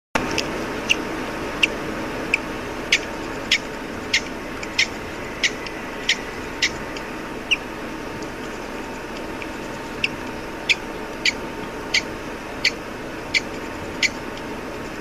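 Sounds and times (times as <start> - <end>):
chick peeping: 1.6 - 7.7, 9.1 - 14.5.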